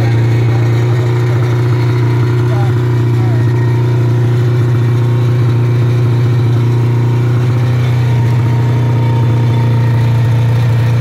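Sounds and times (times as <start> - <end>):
snowmobile engine idling: 0.0 - 11.0.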